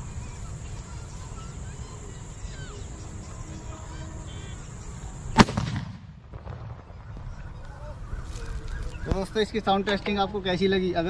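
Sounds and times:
gun bang with echo: 5.4s - 6.7s.

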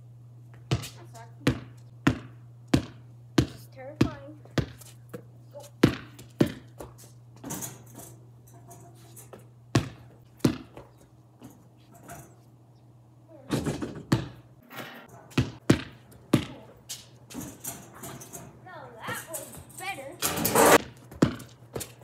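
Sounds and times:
basketball bouncing on concrete: 0.5s - 7.9s, 9.3s - 11.7s, 13.6s - 14.5s, 15.3s - 18.2s, 20.7s - 22.0s.

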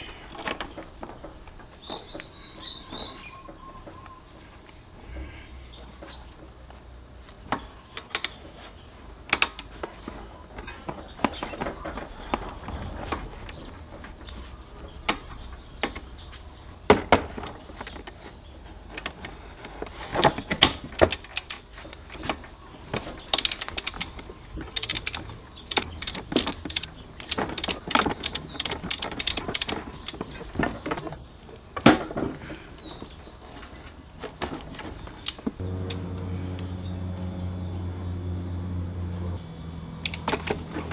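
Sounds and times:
rapid ratchet clicks: 23.4s - 24.2s, 24.8s - 30.2s.

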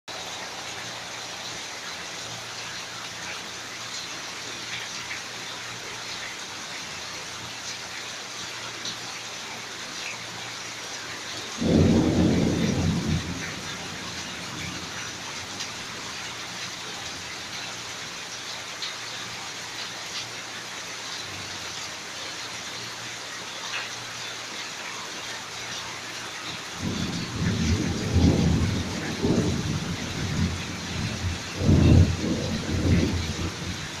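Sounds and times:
steady rain falling: 0.1s - 34.0s
thunder rumbling: 11.6s - 15.2s, 26.8s - 34.0s.

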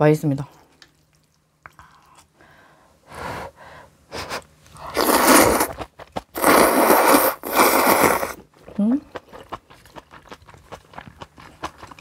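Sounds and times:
noodles being slurped: 4.8s - 8.4s.

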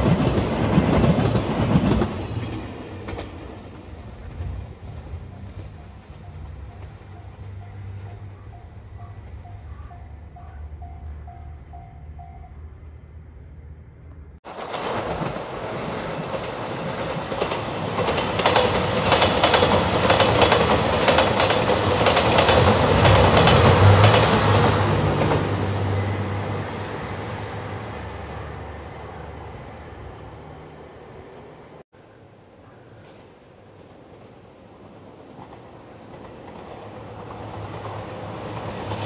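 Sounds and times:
diesel train engine drone: 0.0s - 31.8s
wheels clacking over rail joints: 14.4s - 26.0s.

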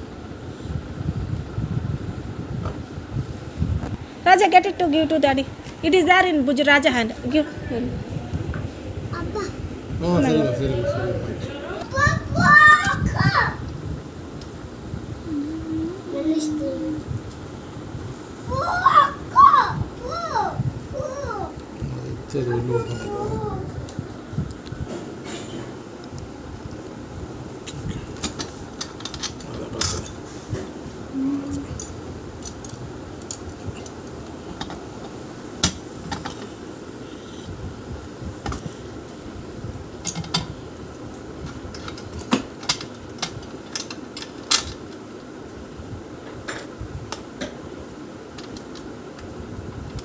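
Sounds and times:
metal parts and tools clinking: 41.8s - 44.9s.

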